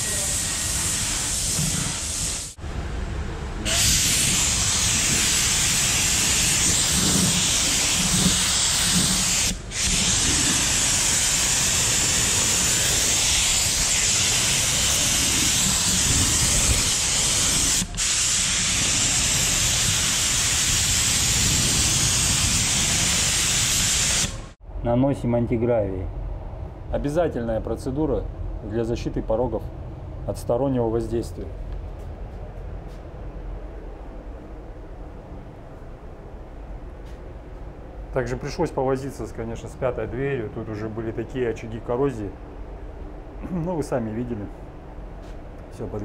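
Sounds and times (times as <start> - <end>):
spray gun hissing: 0.0 - 2.6, 3.7 - 24.6.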